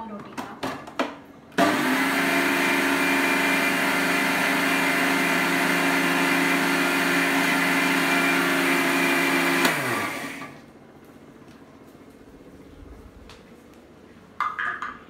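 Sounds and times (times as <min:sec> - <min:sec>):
mixer grinder grinding: 0:01.6 - 0:10.6.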